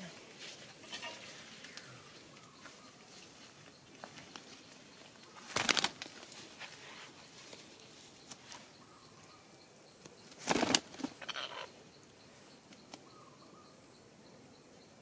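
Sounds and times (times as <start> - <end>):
parrot wings flapping: 5.5 - 6.4, 10.3 - 11.3.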